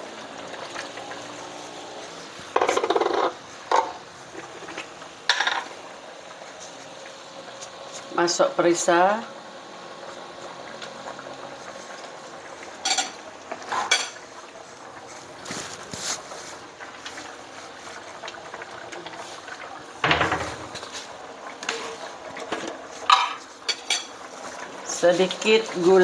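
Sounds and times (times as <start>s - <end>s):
curry bubbling in a wok: 0.0s - 26.0s
spoon and dishes clinking: 23.1s - 24.1s.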